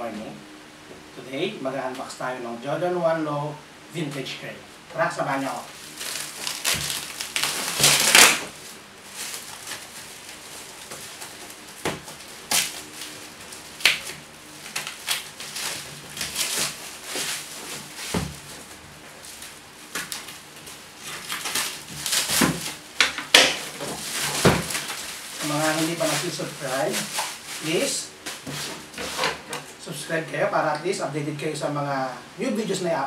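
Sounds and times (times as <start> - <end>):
plastic wrap and tape crinkling: 4.9 - 29.8.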